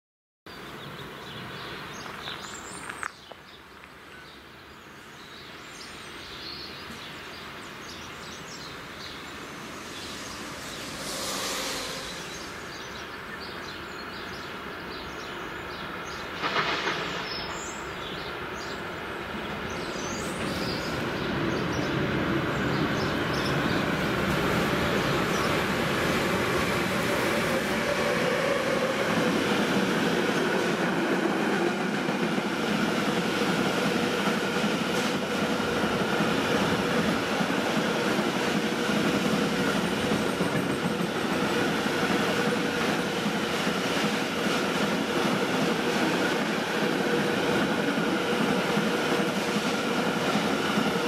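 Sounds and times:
birds chirping: 0.5 - 16.4, 17.0 - 51.0
freight train rumble: 8.3 - 51.0
rushing noise: 9.3 - 13.0.

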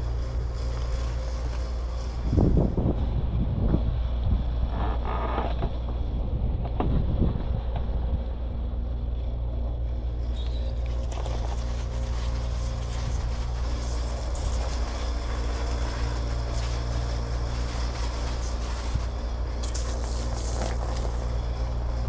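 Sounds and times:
low hum: 0.0 - 22.0
hose spraying water: 10.5 - 22.0.

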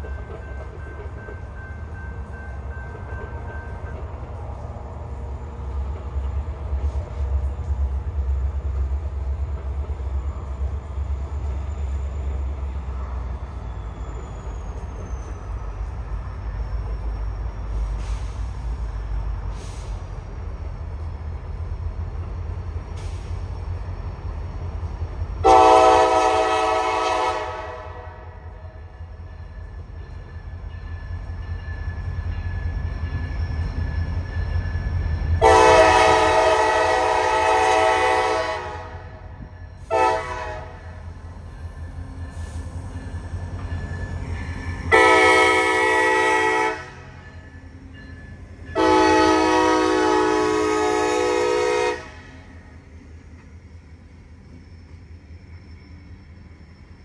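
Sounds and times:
locomotive air horn blasts: 25.4 - 28.5, 35.4 - 39.1, 39.9 - 40.9, 44.9 - 47.2, 48.7 - 52.4.

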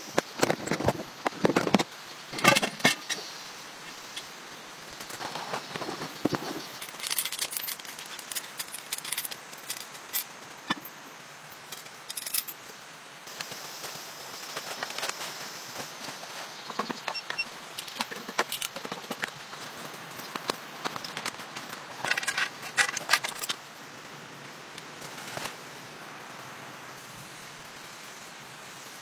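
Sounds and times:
camping gear clicks and clatters: 0.0 - 11.0, 11.6 - 12.7, 13.3 - 23.7
steady hiss: 0.0 - 29.0.

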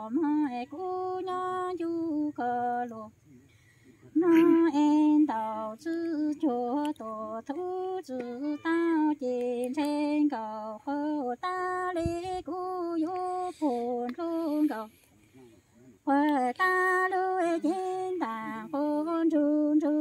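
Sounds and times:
woman chanting sung poetry: 4.2 - 15.0.

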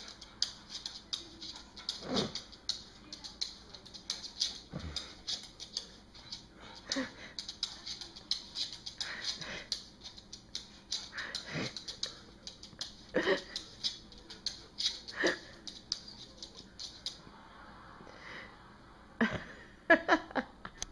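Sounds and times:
dog rubbing on wooden floor: 0.0 - 6.5, 7.4 - 17.2.

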